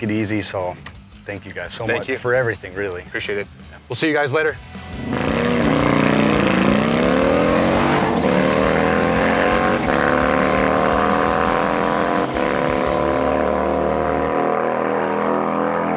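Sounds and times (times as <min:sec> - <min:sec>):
motorcycle accelerating hard: 0:04.9 - 0:15.9.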